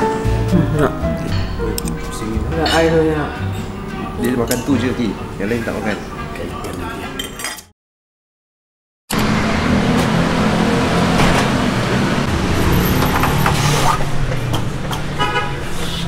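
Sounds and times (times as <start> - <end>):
road traffic with engines running: 9.1 - 16.0.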